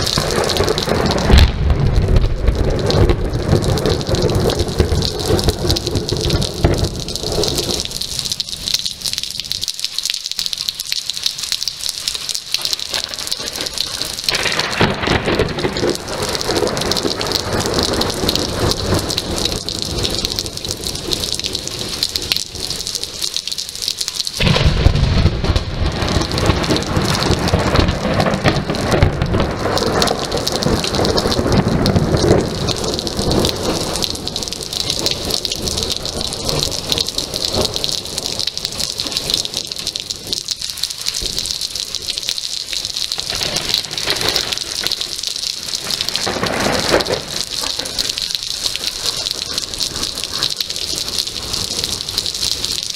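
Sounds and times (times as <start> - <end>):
thunder rumbling: 0.0 - 10.1, 10.8 - 52.9
heavy rain: 0.0 - 52.9.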